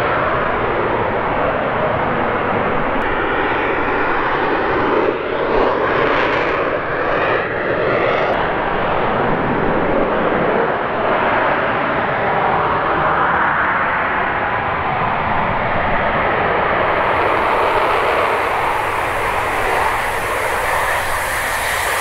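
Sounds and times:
rocket engine rushing: 16.8 - 22.0.

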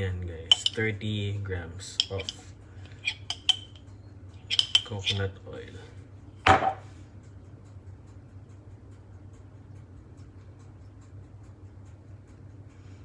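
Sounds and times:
fork clinking on glass jar: 0.5 - 0.8, 3.1 - 3.8, 4.5 - 5.2
fork scraping in jar: 3.0 - 3.8, 4.4 - 5.2.

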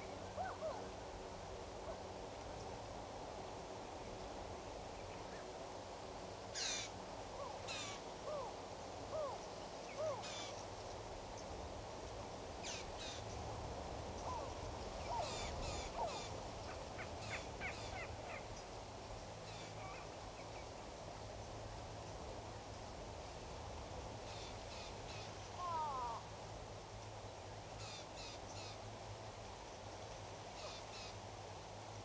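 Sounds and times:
background hiss: 0.0 - 32.0
birds harsh calls: 6.6 - 6.9.

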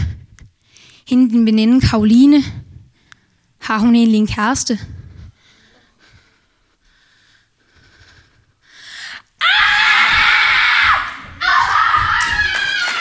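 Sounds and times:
audience cheering and screaming: 9.4 - 13.0.

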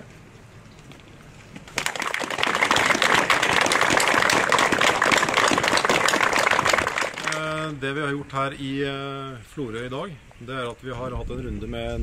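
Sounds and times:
crowd applauding: 1.7 - 7.6.

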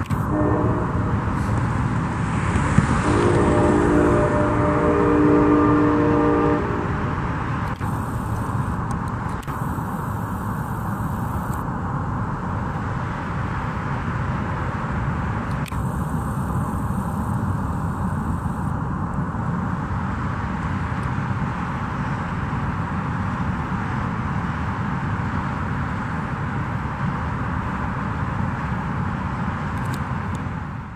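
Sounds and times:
train running by: 0.0 - 30.9
train horn chord: 0.2 - 1.8, 3.0 - 7.3.

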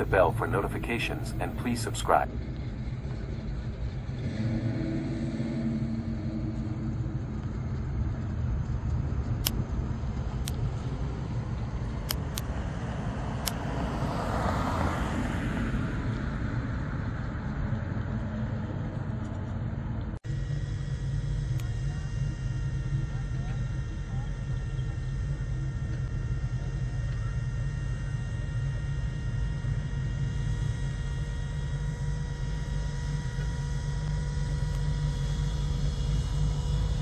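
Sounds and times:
car driving slowly past: 1.4 - 20.8.

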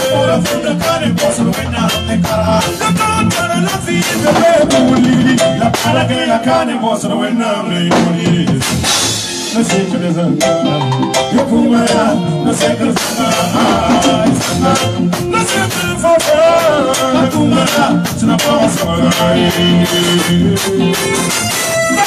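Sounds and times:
drum kit playing: 0.0 - 22.0
electric guitar: 0.0 - 22.0
man singing: 0.0 - 22.0.

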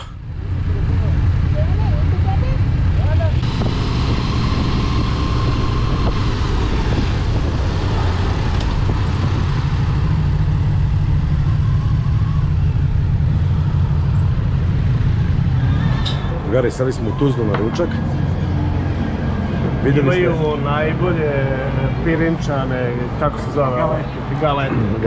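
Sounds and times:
motorcycle engine running: 0.0 - 16.0
wind noise: 2.8 - 16.5.

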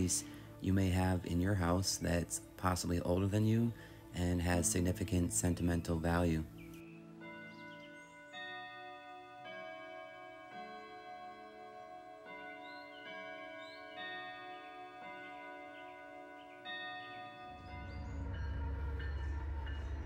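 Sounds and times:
tubular clock chimes: 7.2 - 20.0.

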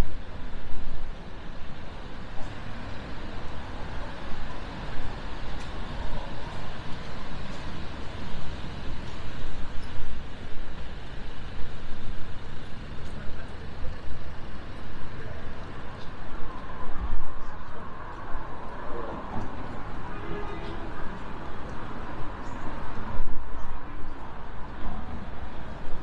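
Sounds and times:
cars passing on wet road: 0.2 - 26.0.

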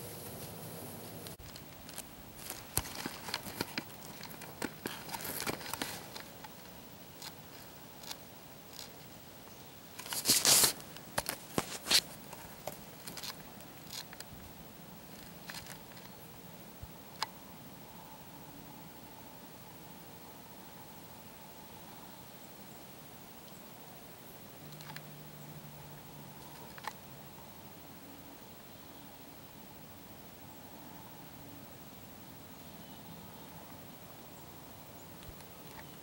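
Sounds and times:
rustling and crinkling: 0.0 - 9.2, 10.0 - 14.5, 15.1 - 16.2.

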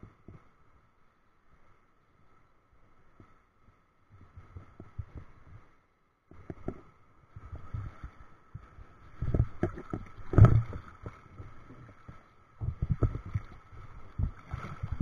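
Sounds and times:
sea water sloshing against camera: 7.6 - 15.0.

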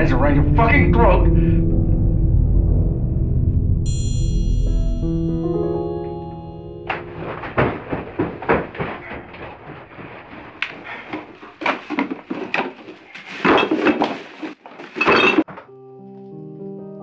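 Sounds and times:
music with sustained notes: 0.0 - 8.9, 15.6 - 17.0
objects rustling and clattering: 7.0 - 15.6.

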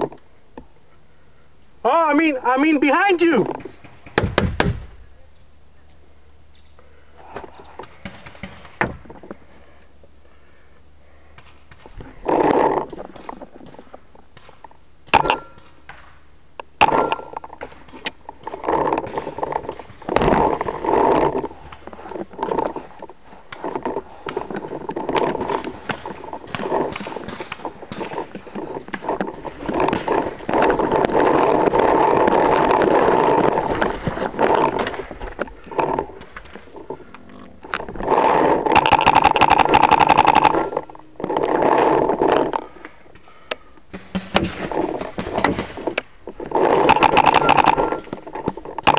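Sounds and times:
camera microphone rustling: 16.9 - 48.9.

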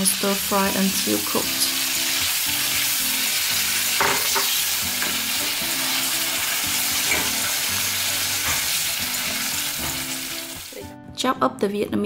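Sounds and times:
giblets sizzling in oil: 0.0 - 10.8.

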